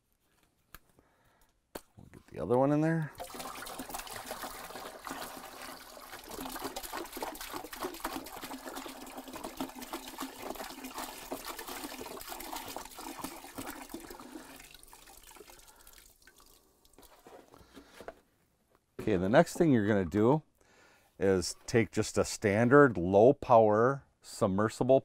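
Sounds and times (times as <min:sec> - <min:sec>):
liquid pouring into a plastic bucket: 0:03.1 - 0:17.6.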